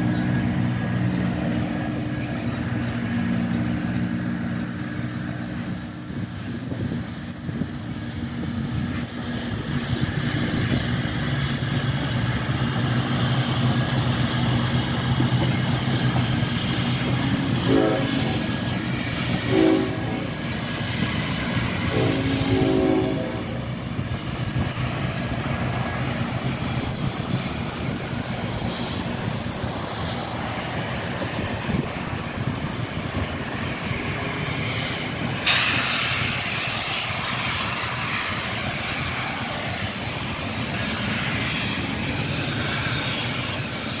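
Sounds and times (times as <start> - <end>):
train rumbling past: 0.0 - 44.0
sudden hiss: 33.9 - 44.0.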